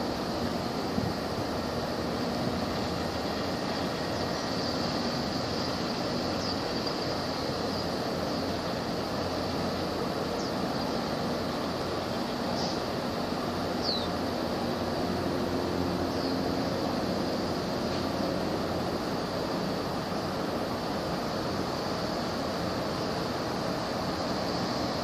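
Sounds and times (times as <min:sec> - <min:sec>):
wind noise: 0:00.0 - 0:03.7
faint high buzz: 0:00.0 - 0:25.0.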